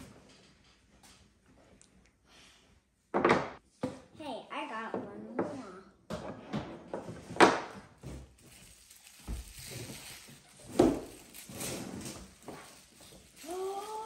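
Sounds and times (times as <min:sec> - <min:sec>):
paper wrapping crinkling: 0:08.4 - 0:14.0.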